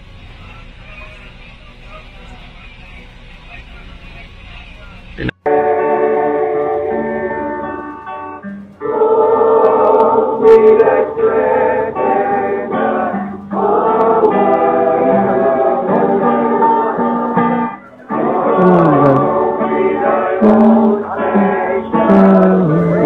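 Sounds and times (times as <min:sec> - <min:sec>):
voices singing long notes: 0:05.2 - 0:23.0
instrumental backing: 0:05.5 - 0:23.0.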